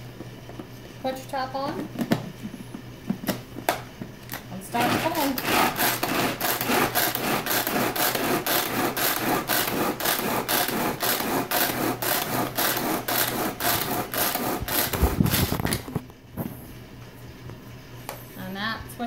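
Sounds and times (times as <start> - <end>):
pull-cord chopper whirring: 4.8 - 15.9.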